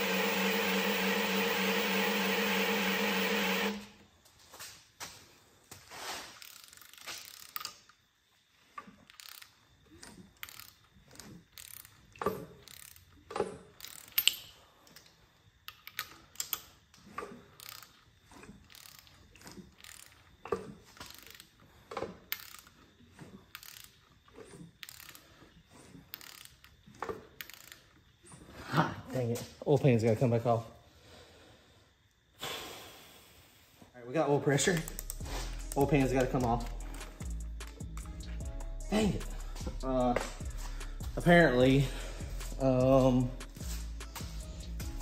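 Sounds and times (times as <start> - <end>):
socket ratchet clicking: 34.7 - 38.3.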